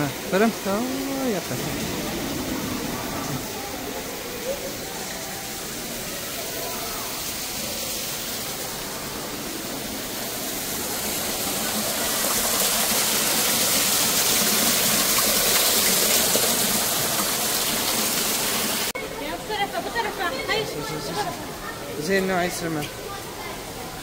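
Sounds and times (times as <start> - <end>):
waterfall splashing: 0.0 - 19.0.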